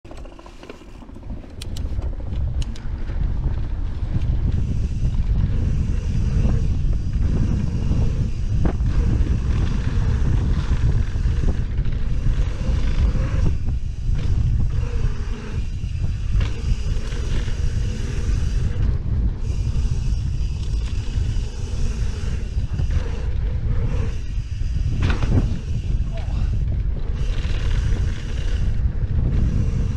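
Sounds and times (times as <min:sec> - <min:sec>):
bike tyres on dirt trail: 0:00.1 - 0:29.9
wind buffeting microphone: 0:00.1 - 0:29.9
bike knocks and rattles: 0:22.2 - 0:28.6.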